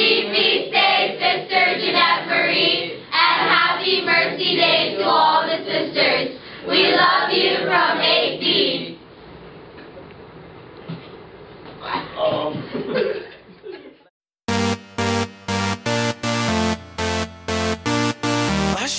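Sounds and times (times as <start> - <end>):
teenage choir singing: 0.0 - 9.0.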